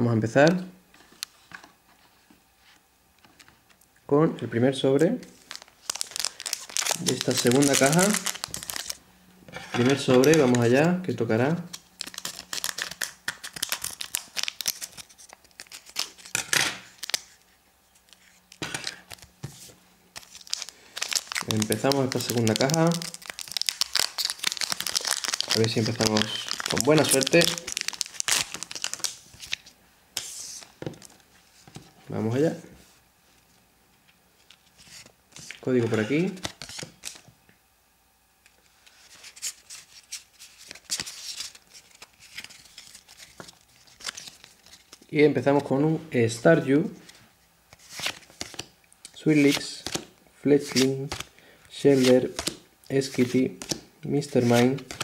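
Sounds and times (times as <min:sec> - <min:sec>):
wrapper rustling: 0:05.3 - 0:09.0, 0:09.7 - 0:10.8, 0:11.7 - 0:31.8, 0:38.8 - 0:45.1.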